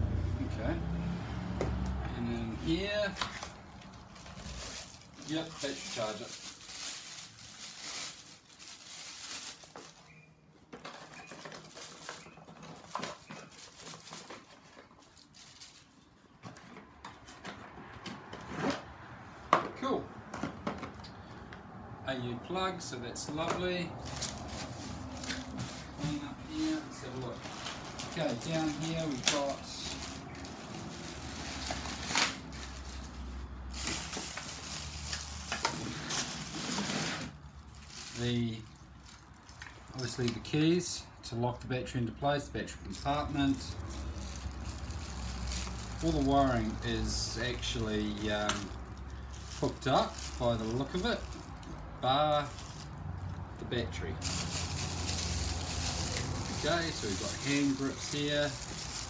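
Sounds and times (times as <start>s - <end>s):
plastic wrapping crinkling: 2.6s - 16.3s, 24.0s - 40.5s, 42.8s - 59.0s.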